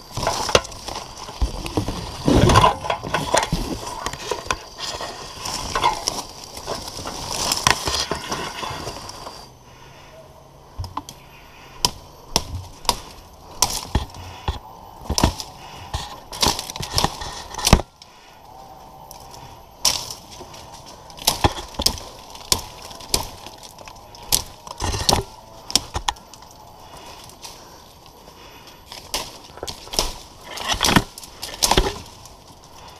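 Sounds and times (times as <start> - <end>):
twigs and branches snapping: 0.0 - 9.4, 10.7 - 32.9.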